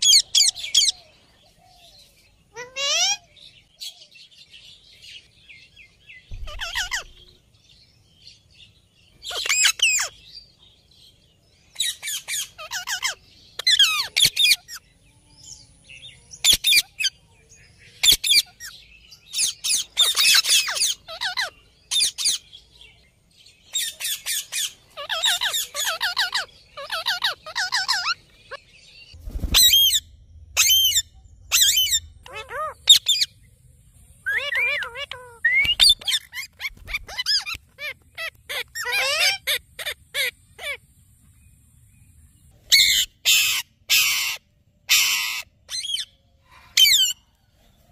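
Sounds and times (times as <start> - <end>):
parakeets shrieking: 0.0 - 1.0, 2.5 - 3.3, 6.3 - 7.3, 9.2 - 10.2, 11.8 - 14.8, 16.4 - 17.2, 18.0 - 22.4, 23.7 - 28.6, 29.4 - 30.0, 30.6 - 33.4, 34.2 - 40.8, 42.7 - 47.2.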